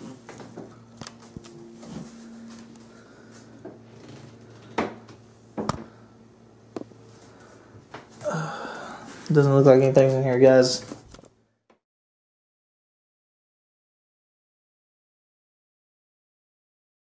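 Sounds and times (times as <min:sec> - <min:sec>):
faint low hum: 0:00.0 - 0:11.6.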